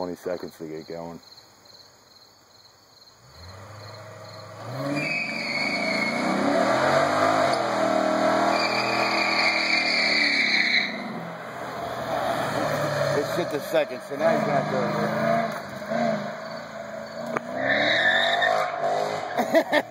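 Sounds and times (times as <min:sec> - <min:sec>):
crickets chirping: 0:00.0 - 0:06.2, 0:08.4 - 0:18.5
car engine revving: 0:03.2 - 0:19.8
tyres squealing: 0:04.5 - 0:19.4.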